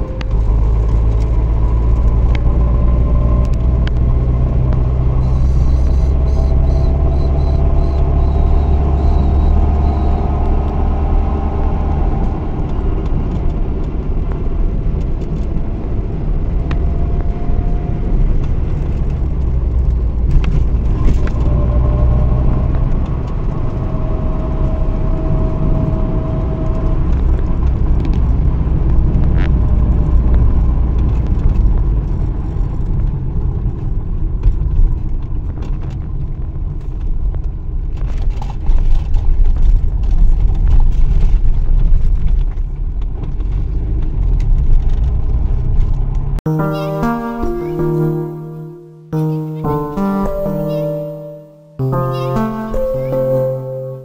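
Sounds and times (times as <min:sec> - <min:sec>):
car engine and tyre rumble: 0:00.0 - 0:46.5
faint whine: 0:05.1 - 0:10.6.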